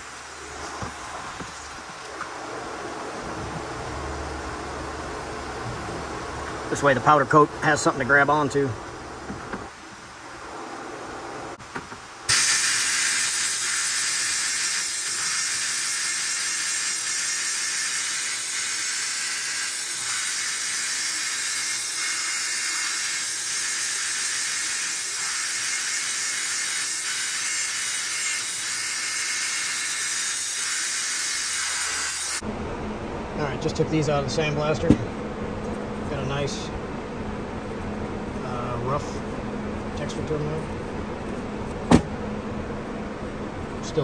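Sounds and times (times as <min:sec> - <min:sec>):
blast gun hissing: 0:12.3 - 0:32.4.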